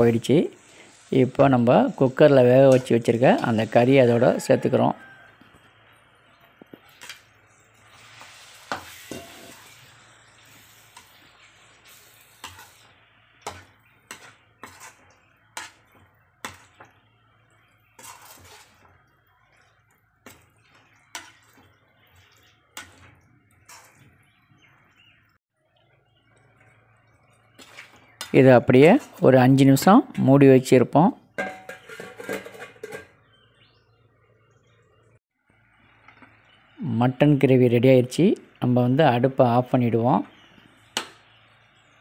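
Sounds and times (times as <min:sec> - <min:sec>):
metal spatula scraping metal pan: 0:06.9 - 0:24.3, 0:27.5 - 0:30.2, 0:31.4 - 0:33.2.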